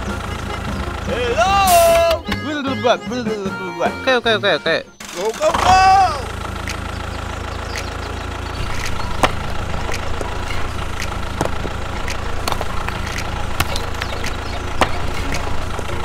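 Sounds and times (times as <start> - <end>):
toy tractor engine drone: 4.0 - 16.0
roller clicking over pebbles: 8.6 - 16.0.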